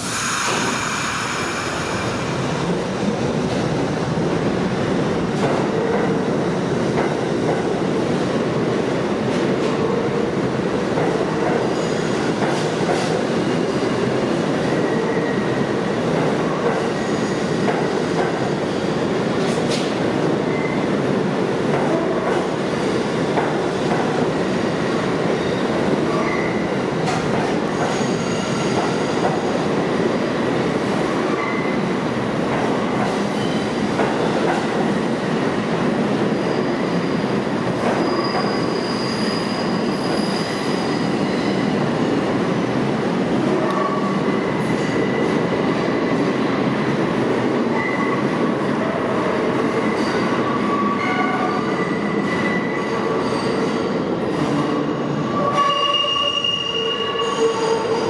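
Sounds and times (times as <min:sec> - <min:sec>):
train brake hiss: 0:00.0 - 0:01.7.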